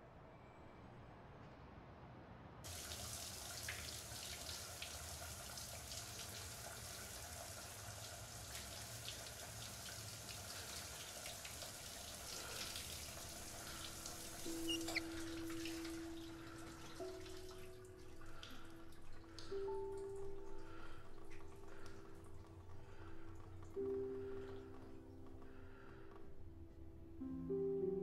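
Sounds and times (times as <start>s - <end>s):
water splashes and drips: 2.6s - 26.0s.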